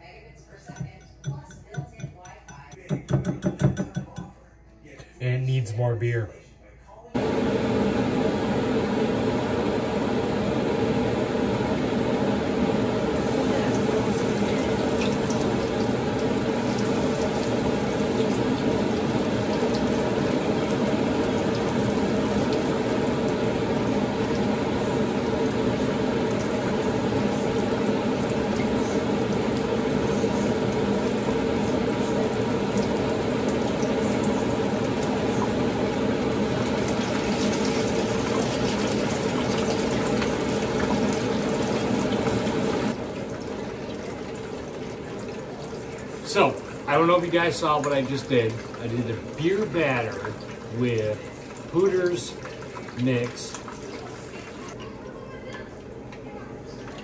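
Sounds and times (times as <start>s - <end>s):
fish frying in hot oil: 11.4s - 54.8s.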